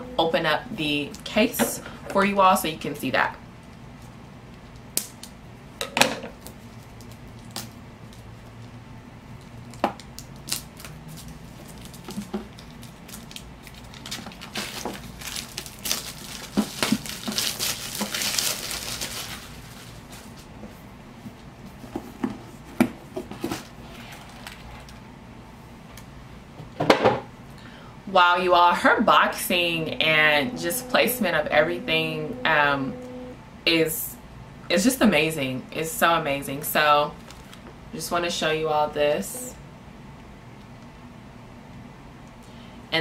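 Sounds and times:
packaging crinkling and tearing: 9.4 - 20.5, 37.2 - 37.6.

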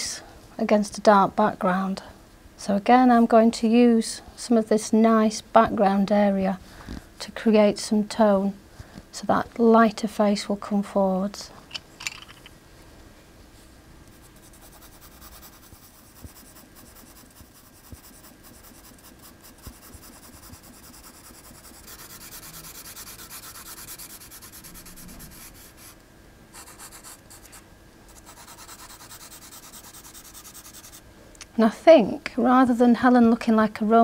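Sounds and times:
pencil scratching on paper: 14.1 - 26.0, 26.6 - 27.6, 28.2 - 31.0.

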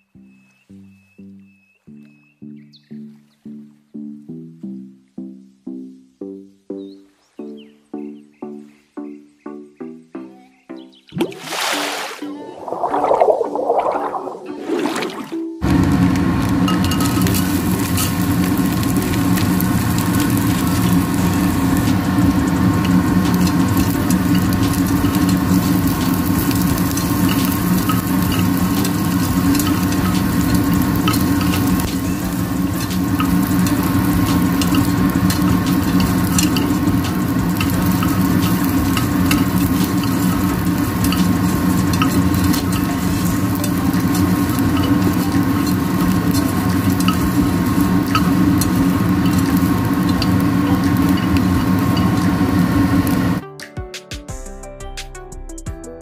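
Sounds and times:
fish sizzling in oil: 15.6 - 53.4.

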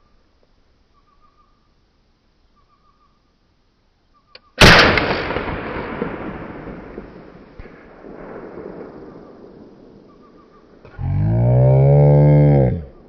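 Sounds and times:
rifle shot echoing: 4.6 - 10.8.

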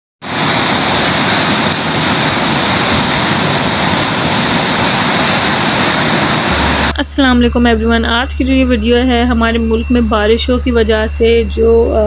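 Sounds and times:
floodwater rushing: 0.2 - 7.0.

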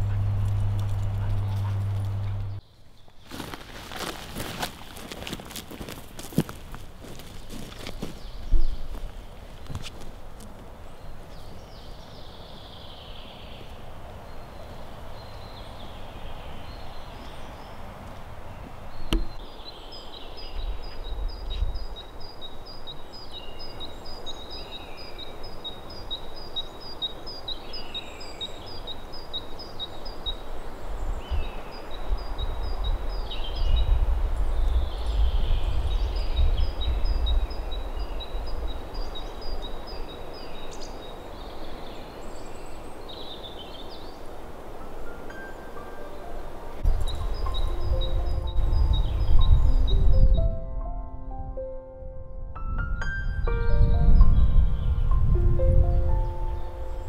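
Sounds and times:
wind rumble on microphone: 0.0 - 2.6, 13.9 - 26.0, 30.0 - 44.6, 46.6 - 57.0
songbird two-note phrase: 45.3 - 51.7, 52.9 - 57.0.

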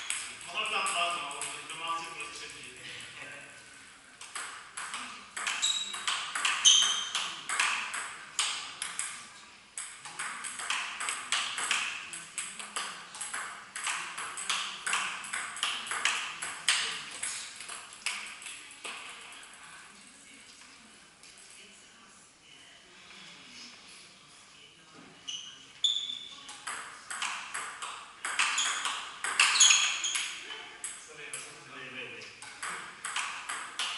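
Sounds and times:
table tennis ball clicking: 4.2 - 9.2, 9.8 - 19.1, 26.5 - 31.4, 32.4 - 33.9.

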